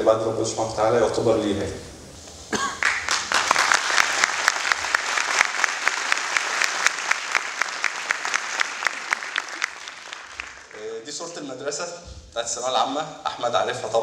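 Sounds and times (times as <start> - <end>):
audience applauding: 2.8 - 11.1.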